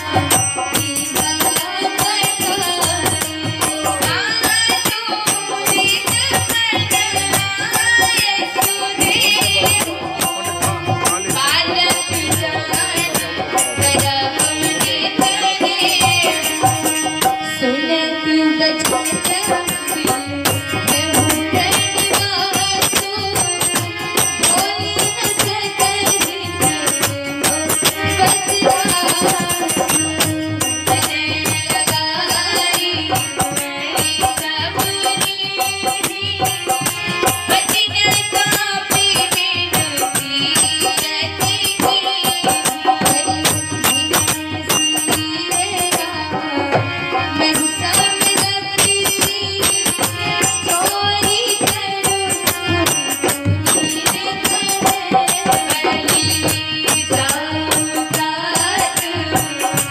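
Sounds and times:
harmonium playing chords: 0:00.0 - 0:59.9
woman singing: 0:00.0 - 0:59.9.

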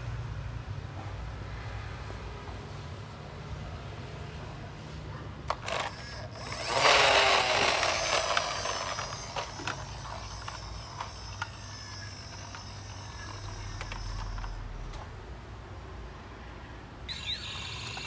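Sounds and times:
toy truck gear whir: 0:05.4 - 0:15.3, 0:17.0 - 0:18.0.

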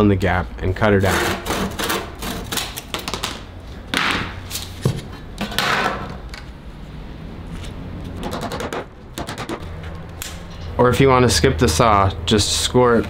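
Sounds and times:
saw cutting wood: 0:01.0 - 0:02.5.

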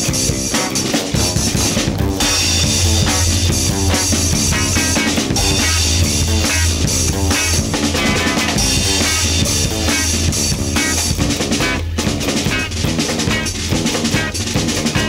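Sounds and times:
drum kit beat: 0:00.0 - 0:15.0
deep bass note: 0:01.4 - 0:09.9
busy higher instrument notes: 0:01.8 - 0:11.8.

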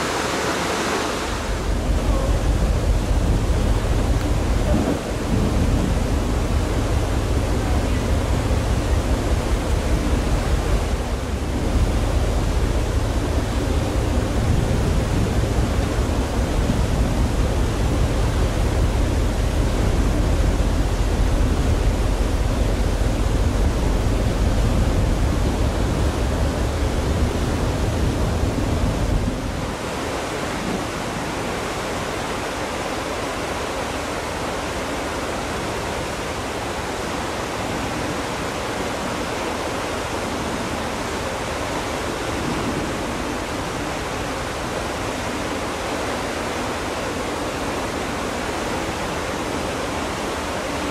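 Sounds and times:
wind and sea noise: 0:00.0 - 0:50.9
wind buffeting on microphone: 0:01.3 - 0:31.6.

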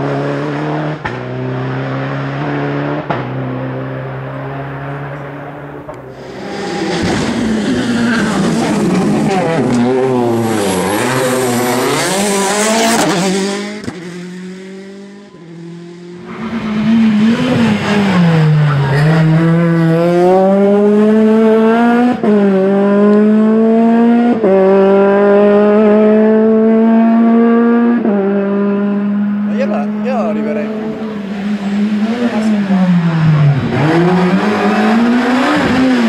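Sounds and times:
rally car engine revving: 0:00.0 - 0:36.0.

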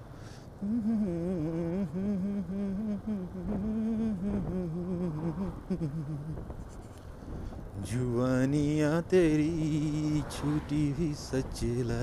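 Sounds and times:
man singing wordless melody: 0:00.5 - 0:06.5, 0:07.7 - 0:12.0.

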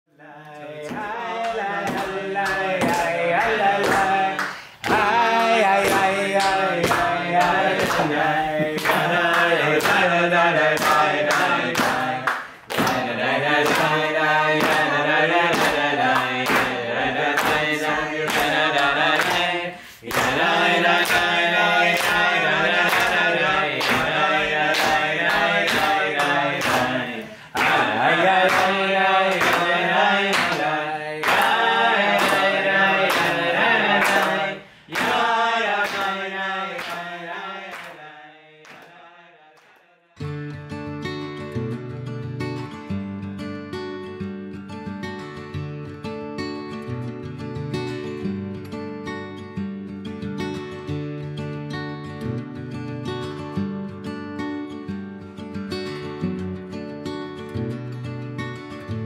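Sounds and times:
group of voices singing: 0:00.1 - 0:40.2.

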